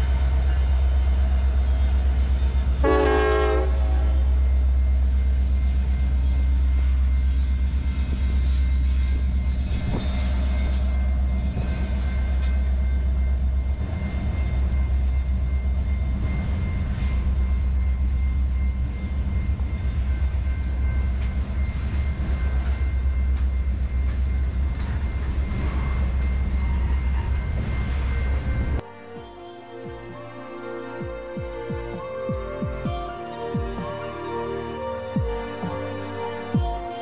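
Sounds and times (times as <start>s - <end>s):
train wheels rumbling on rails: 0.0s - 28.8s.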